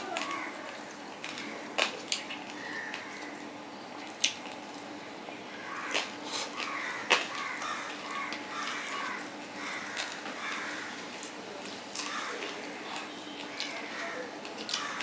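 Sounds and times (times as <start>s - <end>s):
chewing and mouth sounds: 4.0s - 4.9s, 5.8s - 15.0s.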